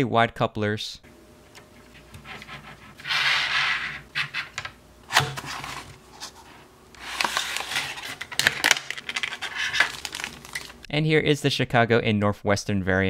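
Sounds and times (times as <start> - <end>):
cardboard and plastic rubbing: 1.8 - 10.9
plastic tray sliding out of cardboard: 2.3 - 8.3.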